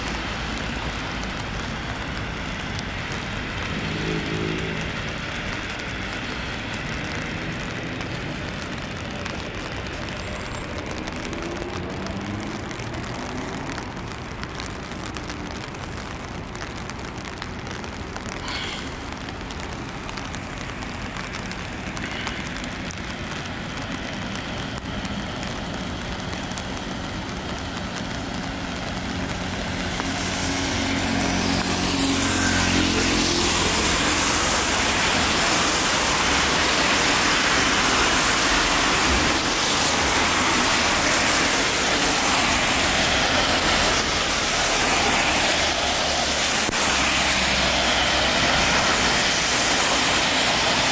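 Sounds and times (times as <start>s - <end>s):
tyres hissing on wet road: 0.0s - 50.9s
vehicle engine hum passing: 0.0s - 50.9s.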